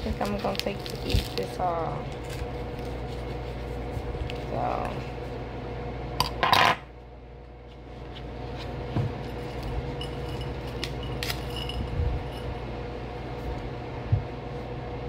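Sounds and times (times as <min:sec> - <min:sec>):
paper wrapper tearing and crinkling: 0:00.0 - 0:03.6
low hum: 0:00.0 - 0:15.0.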